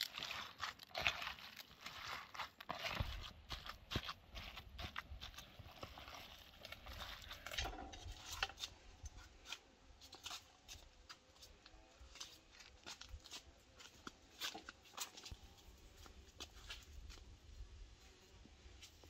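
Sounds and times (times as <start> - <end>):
hands kneading minced meat: 0.0 - 7.6.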